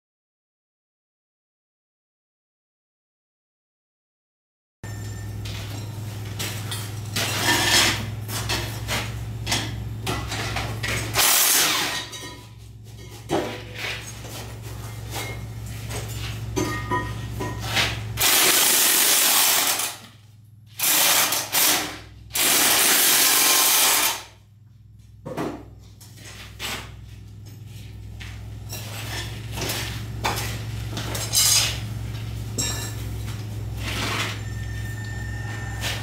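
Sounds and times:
steady low hum: 0:11.8 - 0:18.7, 0:19.6 - 0:36.0.

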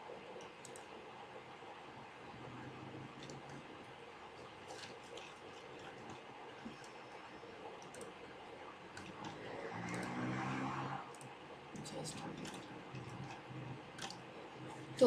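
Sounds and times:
keyboard typing: 0:07.8 - 0:08.2, 0:09.0 - 0:10.5, 0:11.1 - 0:14.8
faint low voice: 0:11.8 - 0:13.8.

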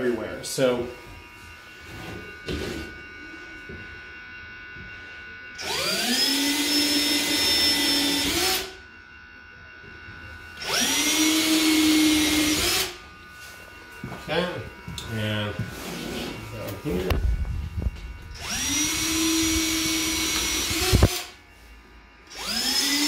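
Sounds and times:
cordless drill cutting wood: 0:05.6 - 0:08.8, 0:10.6 - 0:13.0, 0:18.3 - 0:21.4, 0:22.3 - 0:23.0.

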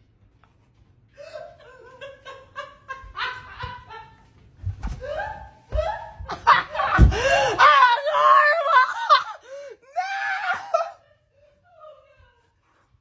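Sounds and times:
woman laughing loudly: 0:01.2 - 0:04.3, 0:05.0 - 0:09.4.

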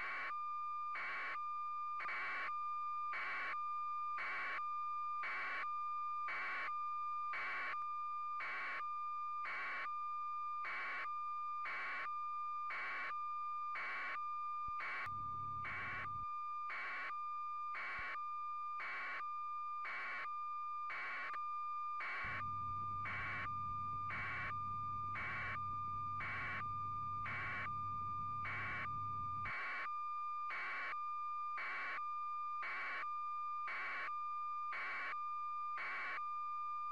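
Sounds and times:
low hum: 0:22.3 - 0:29.4.

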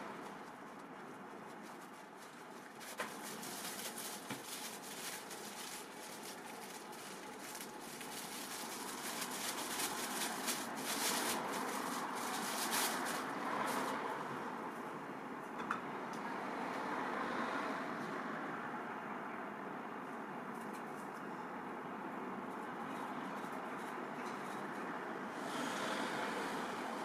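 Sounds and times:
plastic bag crinkling: 0:00.0 - 0:14.0
drawstring pouch rustling: 0:01.1 - 0:13.9.

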